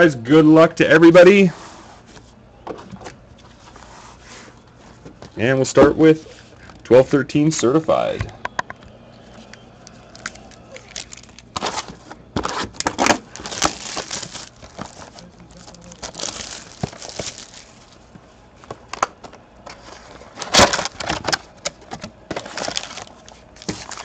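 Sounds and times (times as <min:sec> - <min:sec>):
foil packs crinkling: 0:10.0 - 0:18.1, 0:19.9 - 0:24.0.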